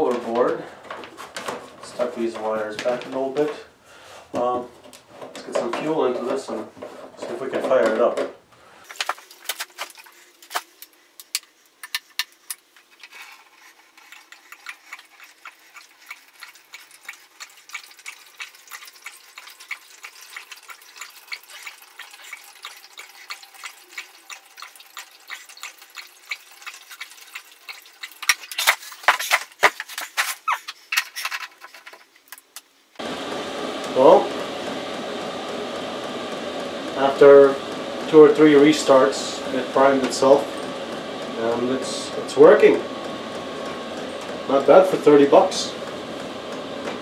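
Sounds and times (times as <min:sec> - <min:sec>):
liquid trickling into plastic tank: 0:13.9 - 0:29.4.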